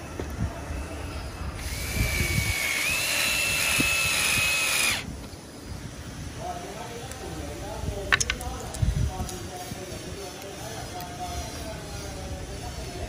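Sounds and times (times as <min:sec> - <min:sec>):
power drill motor whine: 0:01.6 - 0:05.1.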